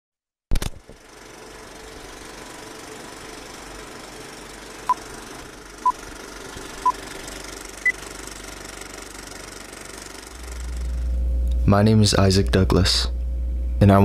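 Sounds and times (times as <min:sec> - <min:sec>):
film projector rattling: 0:00.5 - 0:11.1.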